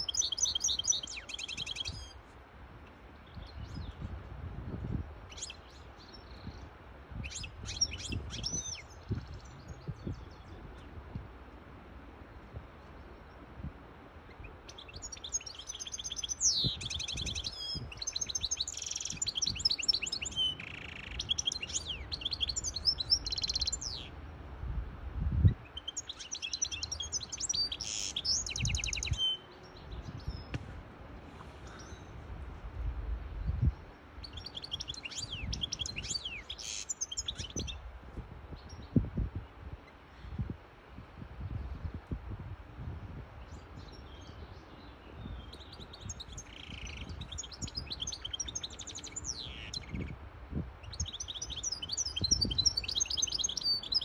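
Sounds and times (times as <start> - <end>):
finch twittering song: 0.0 - 2.3, 3.2 - 4.1, 4.7 - 11.0, 14.2 - 24.2, 25.4 - 30.6, 33.3 - 37.9, 43.4 - 54.0.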